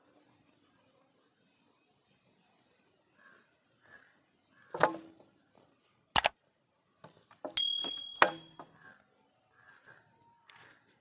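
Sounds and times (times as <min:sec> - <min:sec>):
metal ringing: 0:07.5 - 0:08.8.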